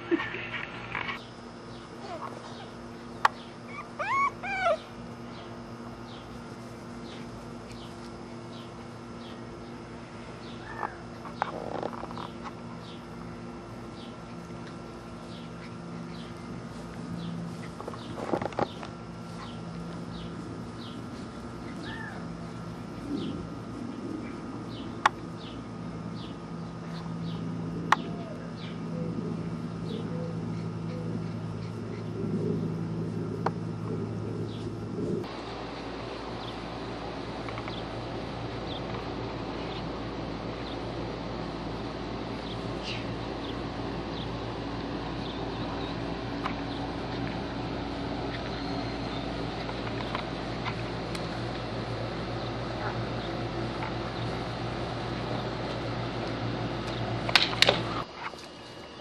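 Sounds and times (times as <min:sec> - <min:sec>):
low steady hum: 0:00.0 - 0:59.0
small birds chirping: 0:00.4 - 0:59.0
puppies whimpering: 0:02.0 - 0:02.8, 0:03.6 - 0:05.0, 0:21.6 - 0:22.3.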